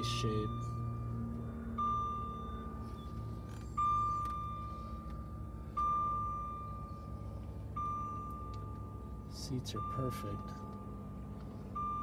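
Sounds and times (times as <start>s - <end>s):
electronic warning chime: 0.0s - 12.0s
steady low hum: 0.0s - 12.0s.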